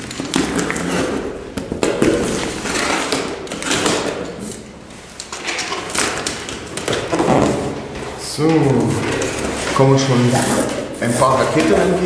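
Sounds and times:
box cutter slitting packing tape: 0.0 - 4.7.

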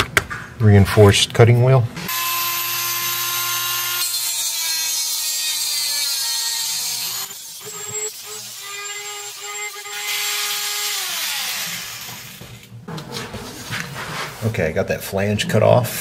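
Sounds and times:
cutting wheel screeching on metal: 2.1 - 12.2
rotary tool motor whine: 6.6 - 12.7.

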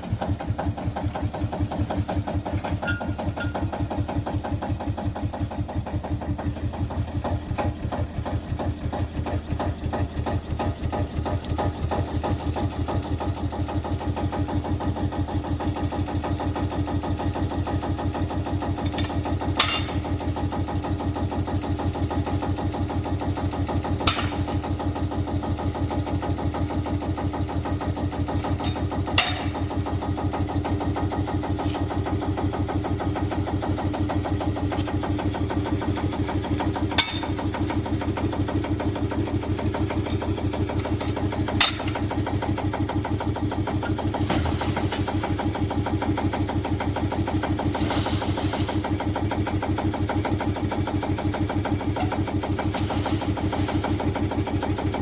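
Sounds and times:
diesel locomotive idling: 0.0 - 55.0
metal clanks of tipping wagons: 2.6 - 3.8
sand sliding out: 47.7 - 48.8, 52.7 - 53.9.

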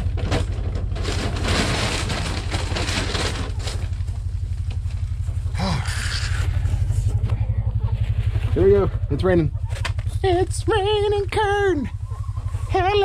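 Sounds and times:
low pulsing hum: 0.0 - 13.0
bag and grain rustling: 0.8 - 5.0.

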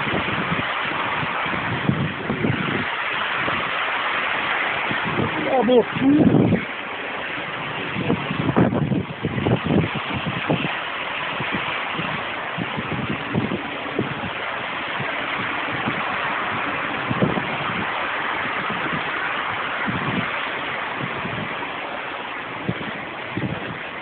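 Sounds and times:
gusts thumping on microphone: 0.0 - 24.0
heavy rain: 0.0 - 24.0
strong wind rushing: 0.0 - 24.0.

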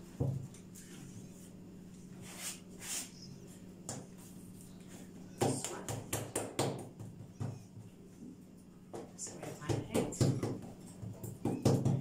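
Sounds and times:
steady low hum: 0.0 - 12.0
hands slapping dough: 8.9 - 12.0.

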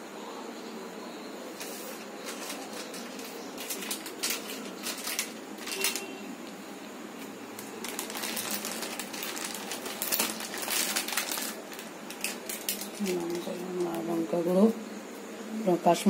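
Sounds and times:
rustling: 1.5 - 6.6, 7.2 - 14.1.

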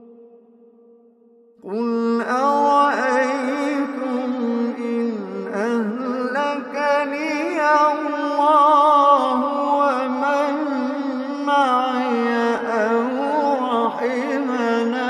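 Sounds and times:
man reciting melodically: 1.6 - 15.0.

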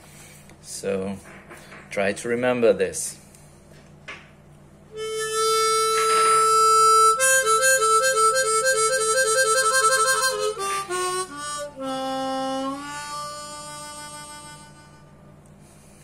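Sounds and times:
harmonica playing: 4.9 - 16.0.

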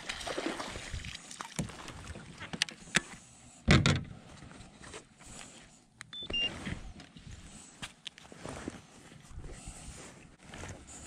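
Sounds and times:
short beeps: 6.1 - 6.5.

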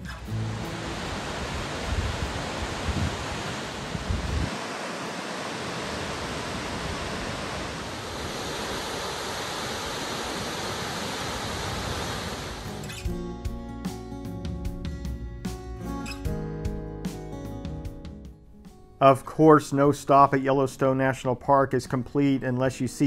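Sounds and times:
waterfall roaring: 0.0 - 12.9
wind buffeting microphone: 0.6 - 12.7.

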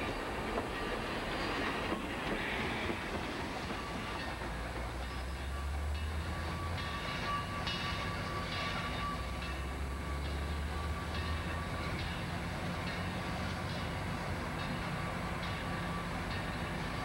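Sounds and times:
steam locomotive working slowly: 0.0 - 17.0.

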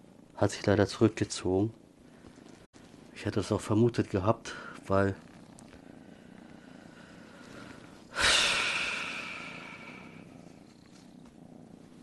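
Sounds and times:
breathy exhale: 5.8 - 10.4.

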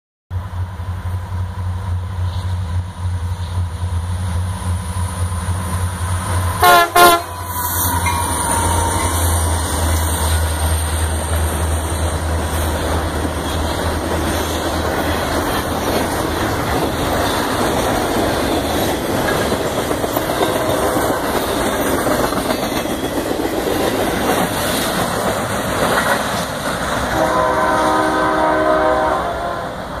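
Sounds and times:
diesel locomotive drone: 0.3 - 30.0
railcars rumbling and clacking: 0.3 - 30.0
steady pitched tone: 5.3 - 12.3
train horn blast: 6.6 - 10.7, 20.3 - 21.4, 27.1 - 30.0.

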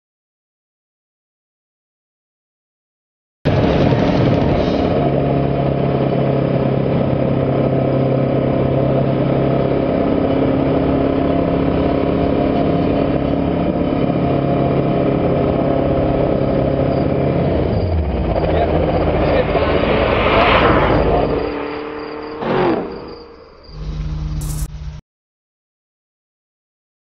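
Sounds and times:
helicopter engine and rotor hum: 3.5 - 19.9.

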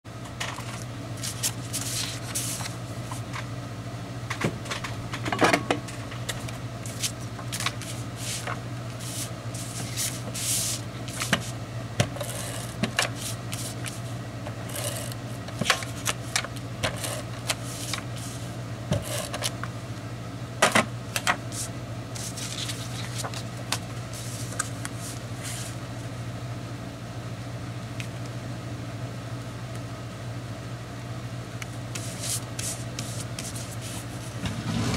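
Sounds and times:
steady low hum: 0.1 - 34.9
paper rustling and sliding: 0.5 - 3.3, 6.8 - 11.6, 12.2 - 14.1, 14.7 - 19.5, 21.5 - 25.8, 31.9 - 34.9.

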